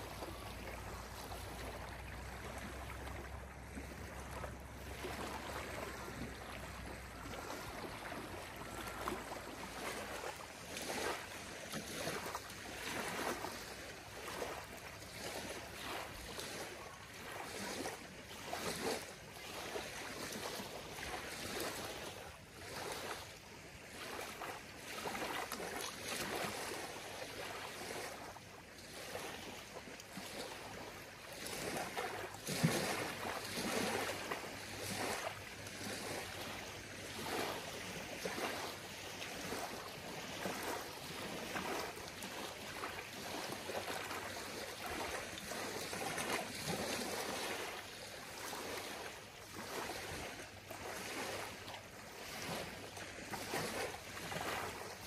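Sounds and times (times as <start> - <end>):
waves lapping on gravel beach: 0.0 - 55.0.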